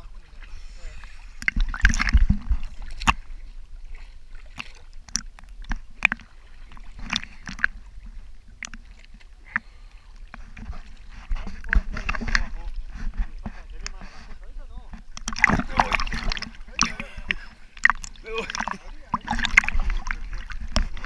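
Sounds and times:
short sharp splashes: 0.0s - 3.2s, 15.0s - 21.0s
sea water sloshing and lapping: 0.0s - 21.0s.

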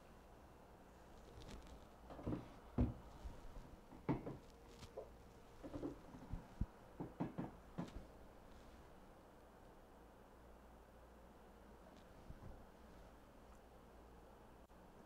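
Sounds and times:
canvases knocking on cardboard: 3.9s - 8.0s.

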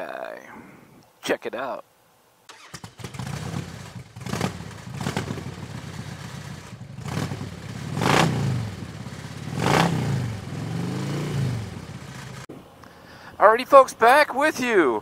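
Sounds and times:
motorcycle engine revving: 2.5s - 12.5s.

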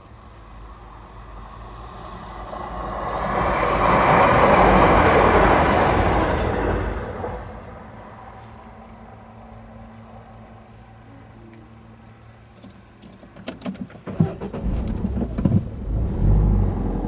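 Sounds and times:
train engine: 0.0s - 12.3s.

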